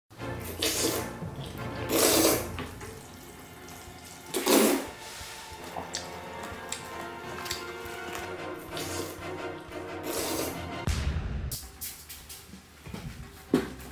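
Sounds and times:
loud slurping of noodles: 0:00.4 - 0:02.7, 0:04.3 - 0:10.8.

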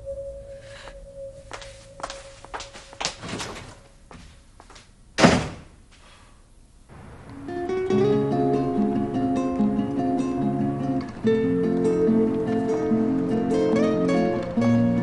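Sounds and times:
loud thud: 0:05.2 - 0:05.8, 0:06.9 - 0:08.4
acoustic guitar music: 0:07.3 - 0:15.0.

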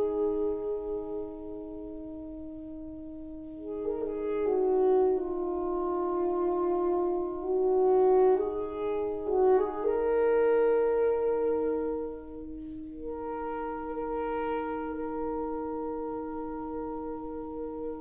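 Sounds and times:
saxophone quartet chords: 0:00.0 - 0:18.0.

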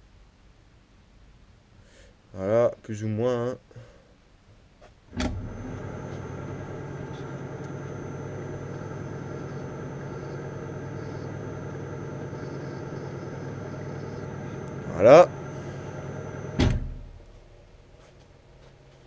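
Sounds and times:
lathe starting clunk: 0:05.1 - 0:17.2
lathe motor humming: 0:05.2 - 0:16.7.

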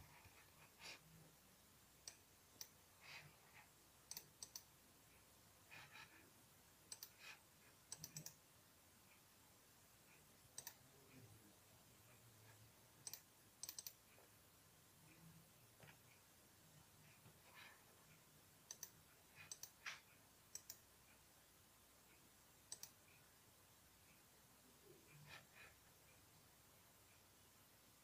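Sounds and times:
computer mouse clicks: 0:02.0 - 0:03.3, 0:04.0 - 0:04.7, 0:06.9 - 0:08.4, 0:10.5 - 0:11.2, 0:13.0 - 0:14.3, 0:18.6 - 0:20.9, 0:22.7 - 0:23.2.

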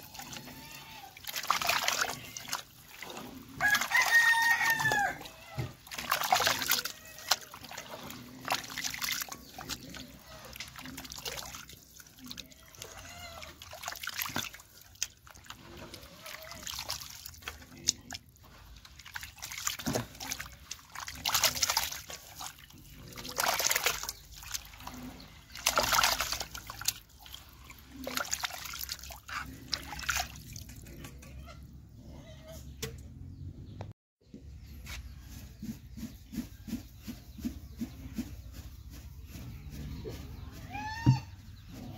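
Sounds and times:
mash sloshing and splashing: 0:00.0 - 0:31.0.

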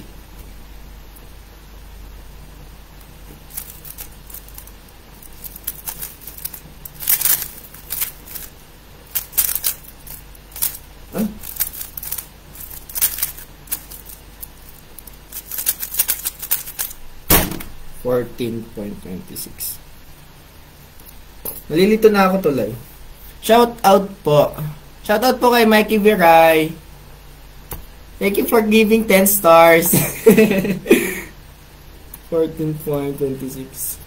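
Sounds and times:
plastic puzzle cube clicking: 0:15.3 - 0:17.0
sharp loud knock: 0:17.3 - 0:17.8.

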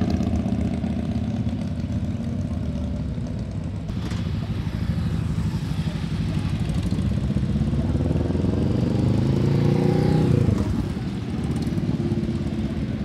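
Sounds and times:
motorcycle passing by: 0:04.1 - 0:13.0.

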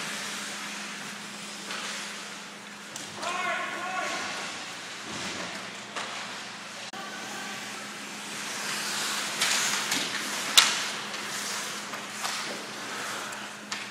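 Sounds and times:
indoor rink hum: 0:00.0 - 0:13.9
skates scraping on ice: 0:08.3 - 0:13.9
hockey sticks knocking: 0:09.4 - 0:13.9.

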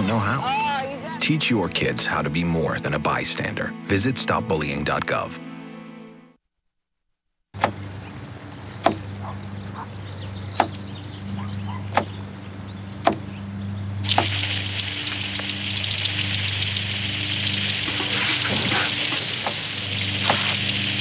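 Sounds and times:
knife chopping on wooden board: 0:13.0 - 0:13.2
loud steady hiss: 0:14.0 - 0:21.0.

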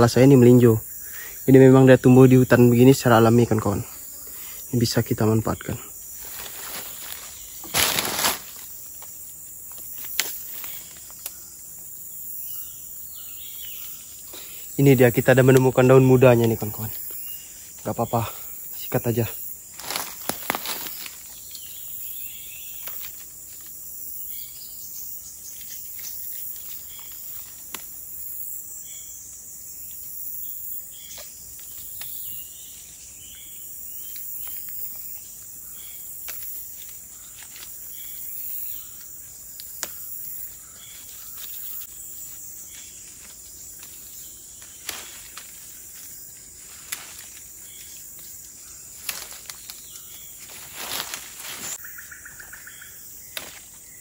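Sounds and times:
chorus of forest insects: 0:00.0 - 0:54.0
leaves snapping and rustling: 0:06.2 - 0:11.5, 0:19.7 - 0:21.7, 0:22.6 - 0:23.8, 0:25.6 - 0:28.0, 0:31.1 - 0:32.4, 0:36.2 - 0:51.8, 0:53.3 - 0:53.8.

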